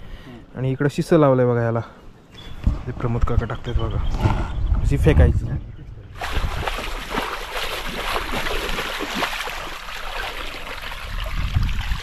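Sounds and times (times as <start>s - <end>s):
shallow water splashing: 6.1s - 12.0s
fishing net pulled through water: 6.2s - 12.0s.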